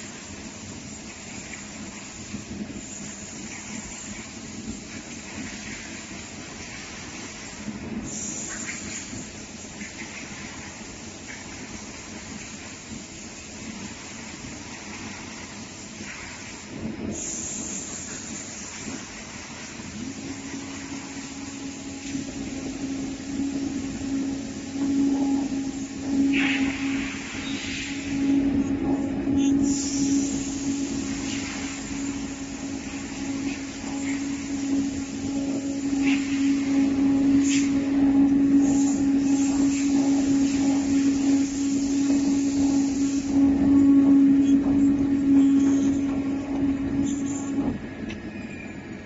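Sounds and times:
high hiss: 0:00.0 - 0:48.0
cutting machine humming: 0:21.0 - 0:47.8.

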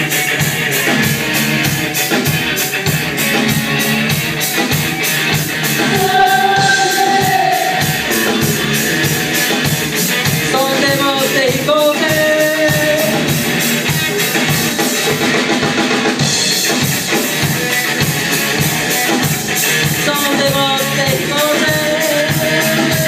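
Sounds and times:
drum kit beat: 0:00.0 - 0:23.0
electric guitars: 0:00.0 - 0:23.0
person singing: 0:05.8 - 0:08.9, 0:10.4 - 0:13.4, 0:20.0 - 0:23.0.

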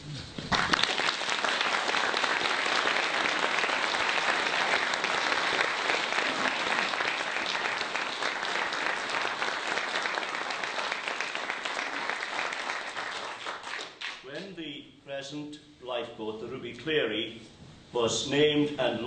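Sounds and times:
audience applauding: 0:00.4 - 0:14.4.

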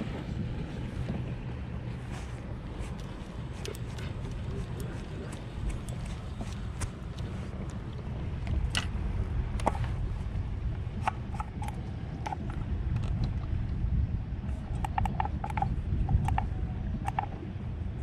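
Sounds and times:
wind buffeting microphone: 0:00.0 - 0:18.0.

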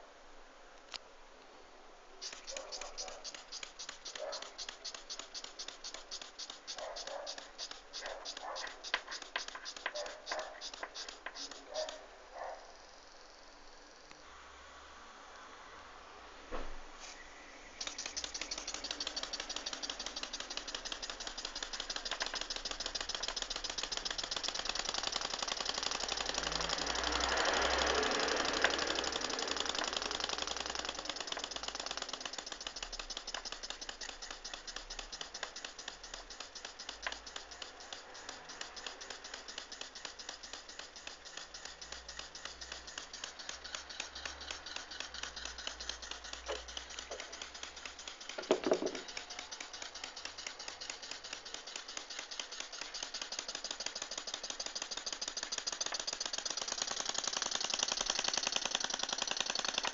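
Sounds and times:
steam engine ticking: 0:02.2 - 0:12.0, 0:17.8 - 0:59.9.

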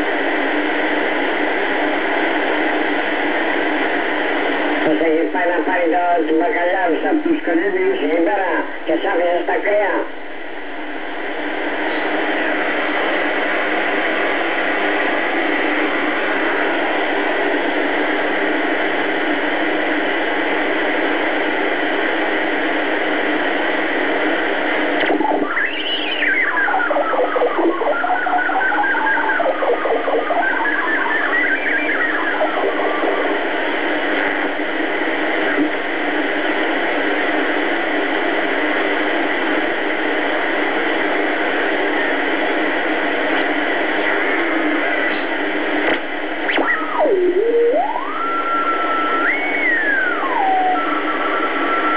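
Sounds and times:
radio static hiss: 0:00.0 - 0:51.9
whistling tone wavering in pitch: 0:46.7 - 0:51.0.

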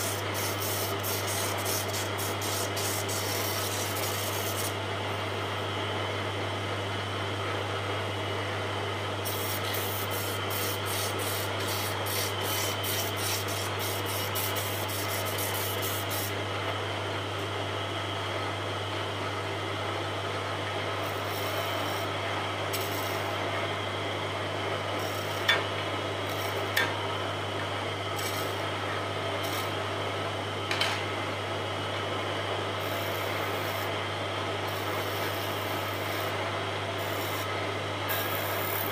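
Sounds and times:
turning tool scraping wood: 0:09.3 - 0:16.3
lathe motor humming: 0:09.3 - 0:16.4.

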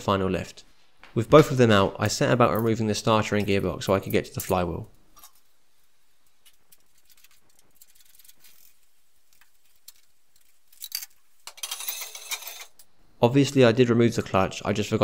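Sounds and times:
hand tools clinking and rattling: 0:09.7 - 0:12.9.

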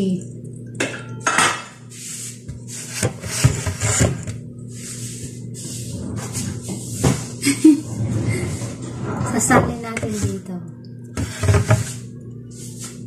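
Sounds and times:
low hum: 0:04.0 - 0:13.0.

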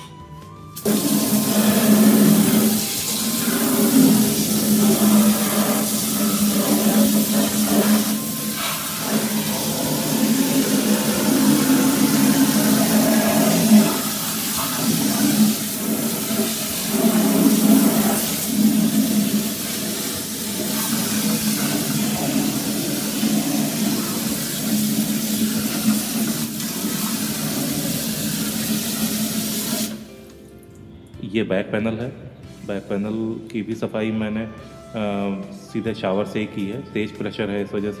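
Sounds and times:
water spray splashing in tank: 0:00.8 - 0:30.1.

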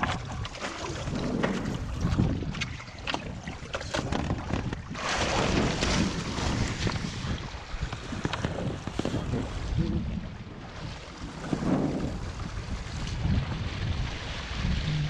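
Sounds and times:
water slapping and splashing: 0:00.0 - 0:15.0
wind buffeting microphone: 0:00.0 - 0:15.0
rush of spray and water: 0:05.0 - 0:07.5.

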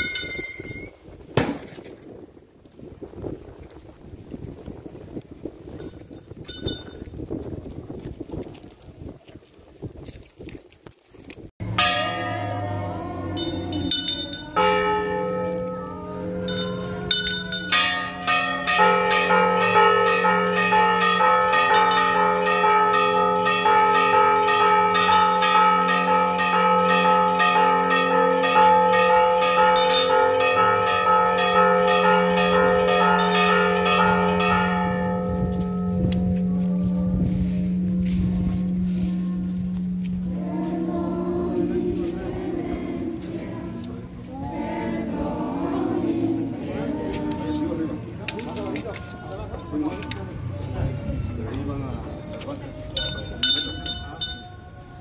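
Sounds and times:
church bells ringing: 0:11.6 - 0:48.2, 0:49.4 - 0:55.0.

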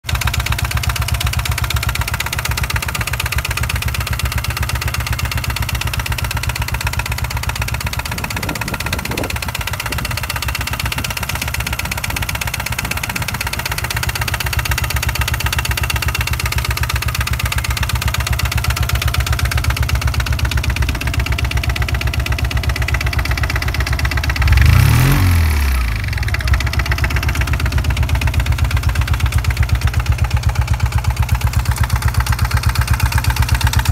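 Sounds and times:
diesel motorcycle engine idling: 0:00.0 - 0:33.9
engine revving: 0:23.6 - 0:28.5.

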